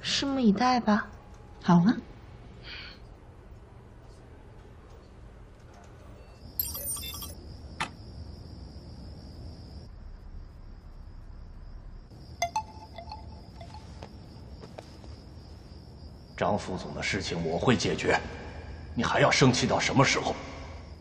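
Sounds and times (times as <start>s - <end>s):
high insect trill: 6.2s - 21.0s
clinks with ringing ping: 6.6s - 7.4s
glittering chime sound effect: 6.6s - 7.4s.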